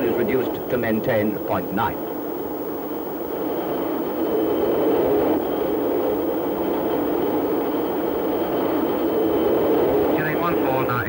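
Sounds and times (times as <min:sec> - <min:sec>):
jet engine rushing: 0:00.0 - 0:11.0
thin high whine: 0:00.0 - 0:11.0.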